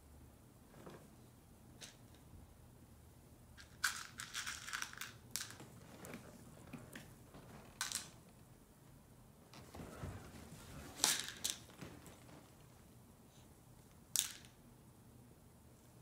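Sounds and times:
plastic pegs rattling in cup: 3.6 - 5.6.

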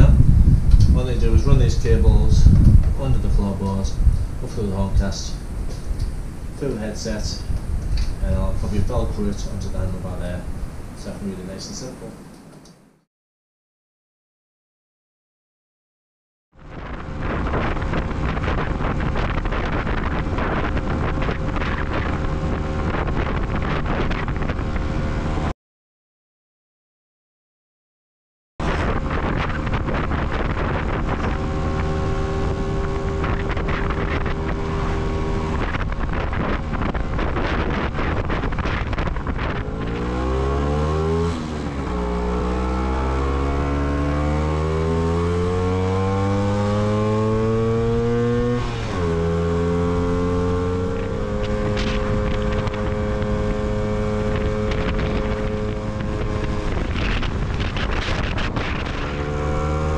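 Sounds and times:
wind on microphone: 0.0 - 12.3, 16.6 - 25.5, 28.6 - 59.9
scooter engine revving: 29.0 - 38.5, 39.2 - 59.9.

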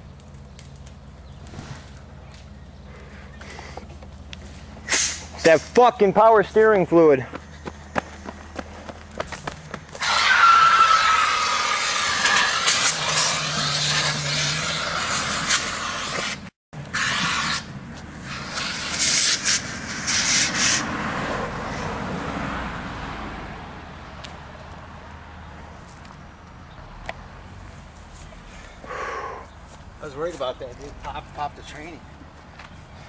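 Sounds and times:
fire extinguisher hissing: 4.8 - 5.5, 10.0 - 20.9.

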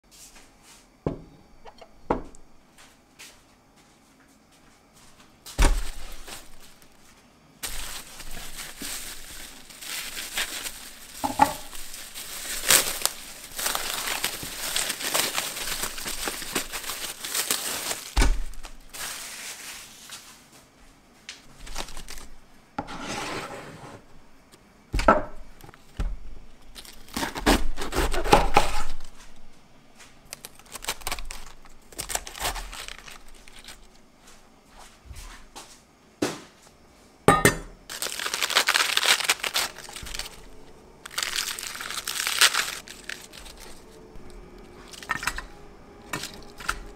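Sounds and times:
plastic film crinkling: 5.6 - 7.0, 7.6 - 20.3, 21.6 - 22.4, 30.2 - 34.0, 37.9 - 46.9
knife cutting through lettuce: 27.1 - 29.0.

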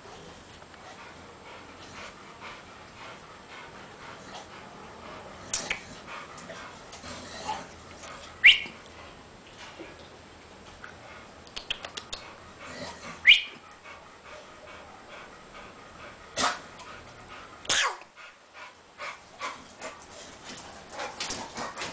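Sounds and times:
dog yelping: 8.4 - 8.7
dog breathing: 12.0 - 20.4.

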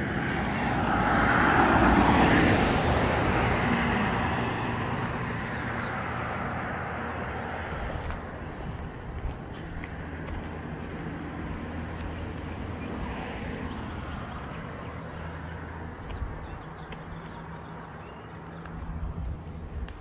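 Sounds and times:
road traffic hum: 0.0 - 20.0
bird chirp: 5.0 - 7.6, 12.0 - 20.0.

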